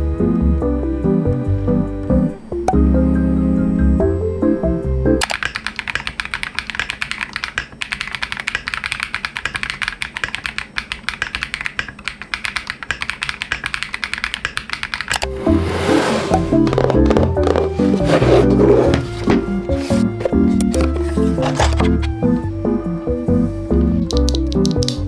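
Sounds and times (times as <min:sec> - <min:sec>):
background music: 0:00.0 - 0:05.2, 0:15.2 - 0:25.0
mechanical keyboard typing: 0:05.2 - 0:15.3, 0:24.0 - 0:25.0.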